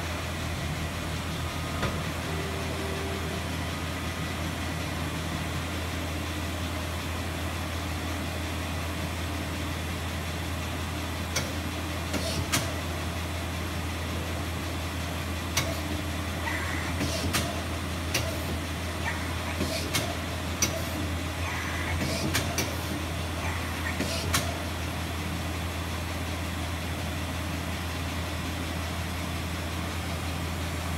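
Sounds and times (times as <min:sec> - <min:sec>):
background whir: 0:00.0 - 0:09.1
low machine hum: 0:00.0 - 0:30.9.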